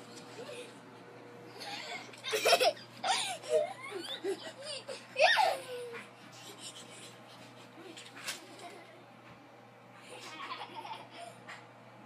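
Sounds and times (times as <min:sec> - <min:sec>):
young child laughing: 0:01.6 - 0:09.0, 0:10.0 - 0:11.6.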